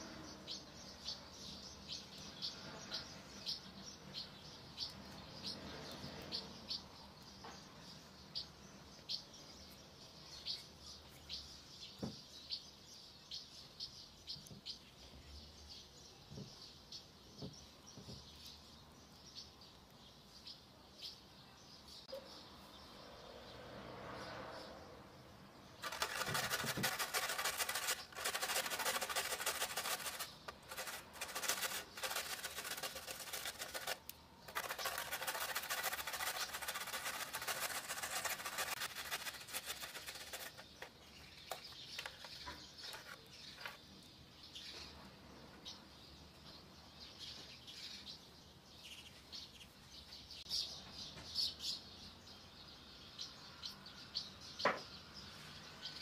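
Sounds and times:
garlic grated on metal grater: 25.8s - 40.9s
scrapes and taps: 25.8s - 43.8s.

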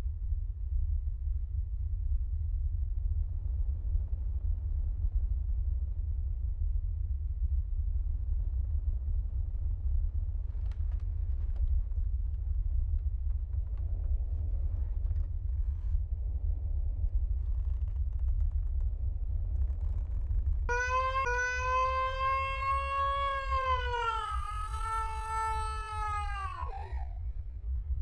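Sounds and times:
deep rumble: 0.0s - 28.0s
faint clicks and rustles: 10.2s - 20.7s.

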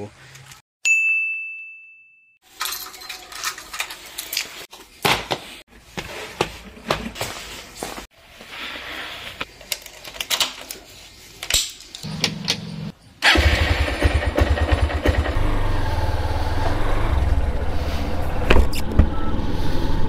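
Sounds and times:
keys clinking off a rack: 2.5s - 4.6s.

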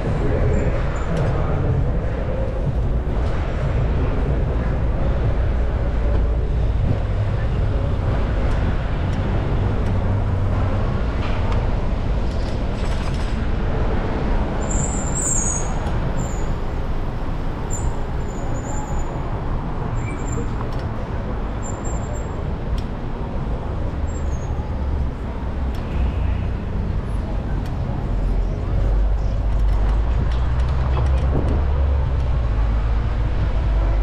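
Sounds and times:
street traffic: 0.0s - 34.0s
wind rushing over microphone: 28.6s - 34.0s.

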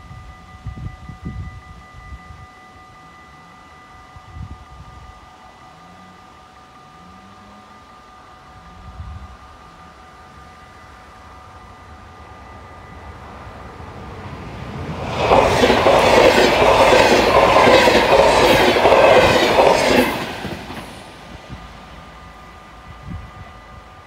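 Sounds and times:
passenger train passing: 0.0s - 24.0s.

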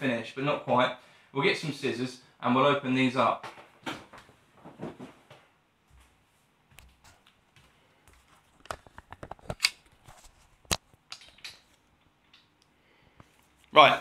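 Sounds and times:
camera handling clicks and knocks: 8.6s - 9.8s.

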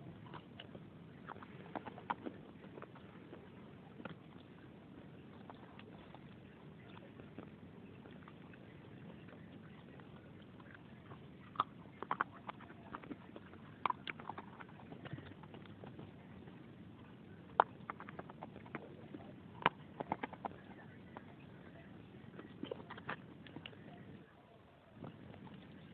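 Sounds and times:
dry clay crunched by teeth: 0.2s - 16.5s, 17.4s - 21.7s.

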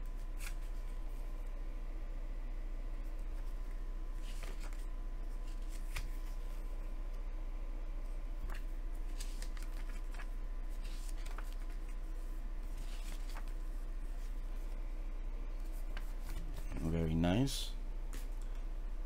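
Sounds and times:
steady low hum: 0.0s - 19.0s
paper pages rustling: 0.1s - 0.9s, 3.1s - 6.6s, 8.4s - 14.7s, 15.6s - 16.8s.

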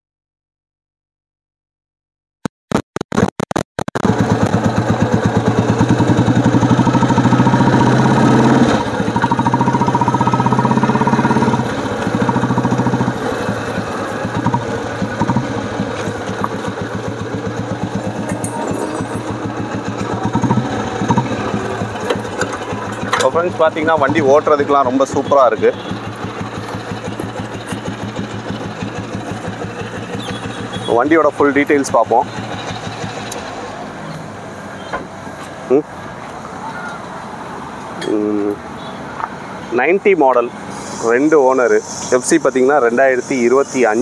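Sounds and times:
motorcycle engine thumping: 3.9s - 7.8s, 8.8s - 33.6s.

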